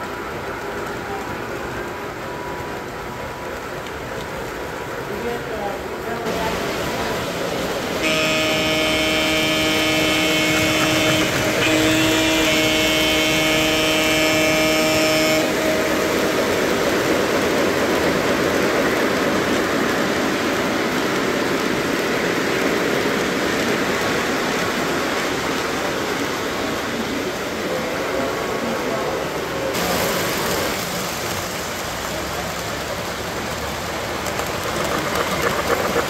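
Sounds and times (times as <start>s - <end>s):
model train rolling on track: 0.0s - 36.0s
model train horn blasts: 8.0s - 16.0s.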